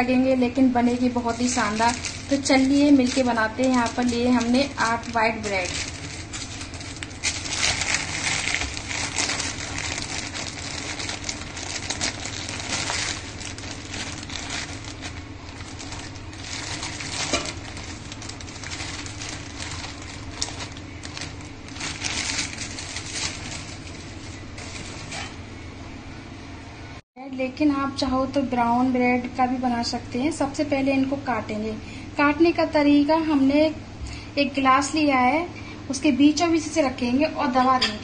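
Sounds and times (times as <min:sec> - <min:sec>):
steady low hum: 0:00.0 - 0:38.0
plastic bag crinkling: 0:00.8 - 0:25.4.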